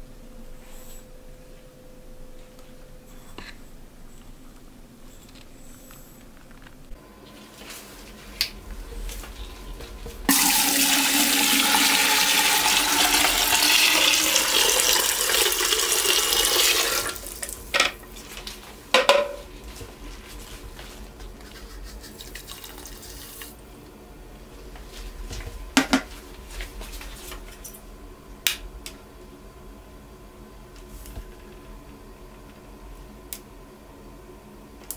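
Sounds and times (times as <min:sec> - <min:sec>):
water running into container: 0:10.3 - 0:17.7, 0:22.2 - 0:23.6.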